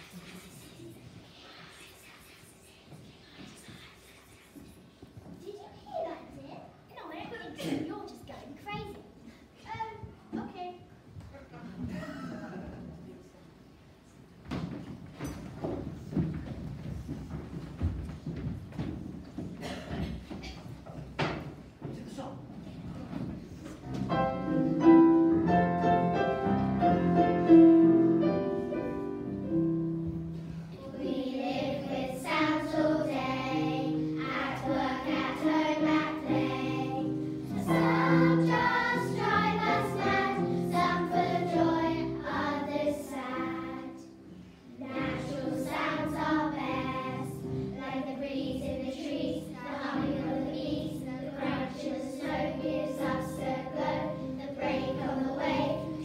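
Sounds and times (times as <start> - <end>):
held musical notes: 23.8 - 56.0
girls choir singing: 29.9 - 56.0.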